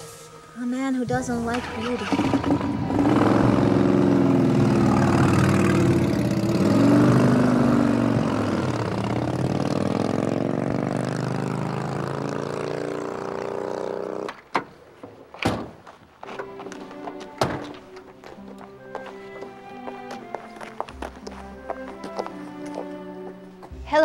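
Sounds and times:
vehicle engine driving: 1.1 - 14.5.

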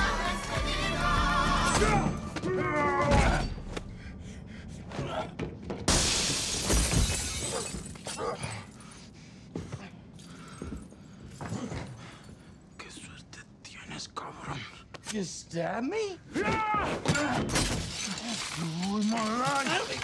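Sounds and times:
music with singing voice: 0.0 - 2.4
glass breaking: 5.9 - 8.3, 17.1 - 20.0.

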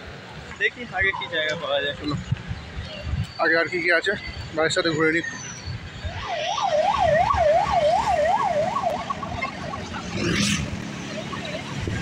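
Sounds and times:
road traffic rumble: 0.0 - 12.0
fast-warbling siren: 6.0 - 10.6.

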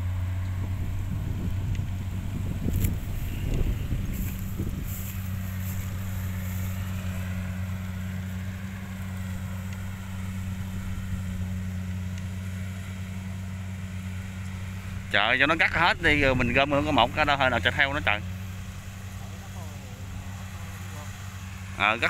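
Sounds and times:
engine humming steadily: 0.0 - 22.0.

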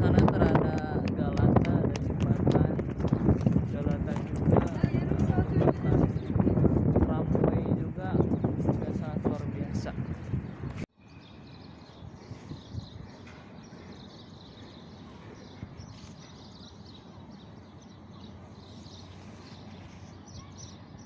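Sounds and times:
birds chirping: 0.0 - 21.0.

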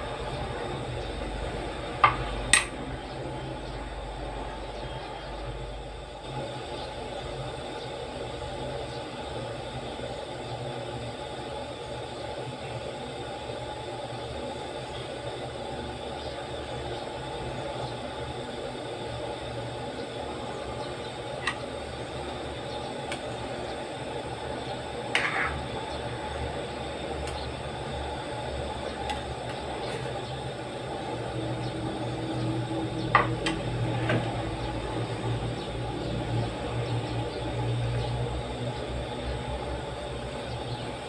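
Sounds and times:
gas burner rumble: 0.0 - 41.0
metal spoon clicking on pan: 2.0 - 2.7.

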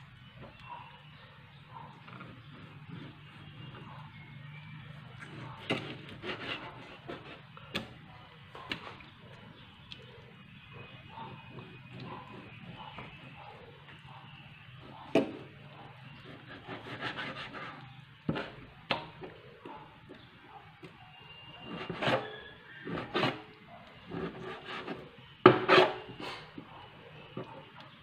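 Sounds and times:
knife scraping strokes: 5.2 - 7.5, 16.2 - 18.6, 21.6 - 23.5, 24.1 - 26.4.

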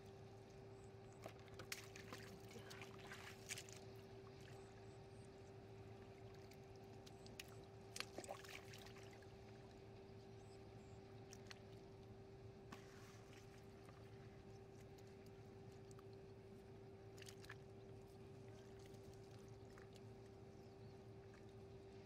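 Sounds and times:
faint steady hum: 0.0 - 22.0
splashing of shallow muddy water: 1.2 - 4.6, 7.1 - 9.2, 17.1 - 20.1.

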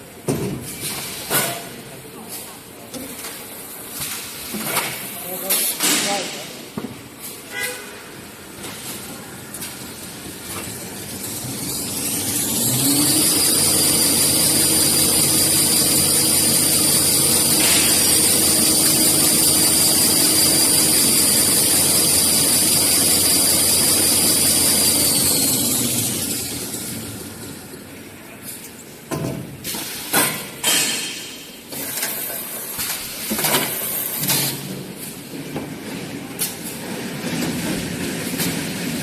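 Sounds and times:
paper winding machine whining: 11.2 - 27.2.

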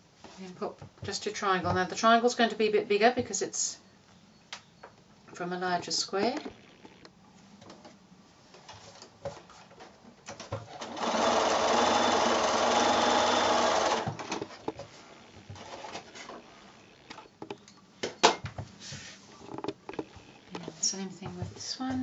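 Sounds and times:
sewing machine stitching: 10.7 - 17.3
handling clicks and taps: 17.1 - 18.5, 19.4 - 21.4.

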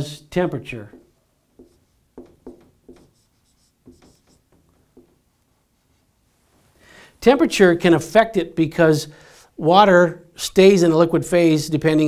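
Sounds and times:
marker writing on whiteboard: 0.7 - 6.1.

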